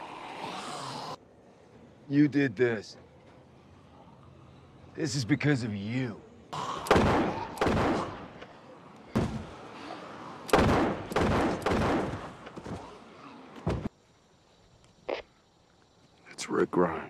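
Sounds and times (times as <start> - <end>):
gunshots with ringing echo: 6.6 - 8.4, 10.5 - 12.4.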